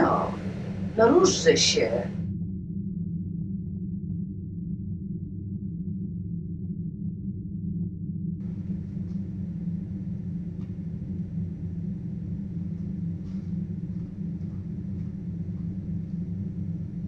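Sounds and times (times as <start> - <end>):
low rumbling drone: 0.0 - 17.0.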